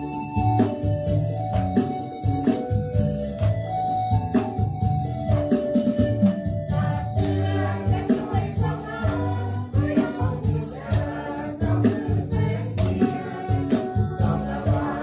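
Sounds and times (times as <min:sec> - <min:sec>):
drums steady beat: 0:00.0 - 0:15.0
live band playing: 0:00.0 - 0:15.0
voices singing together: 0:06.7 - 0:15.0.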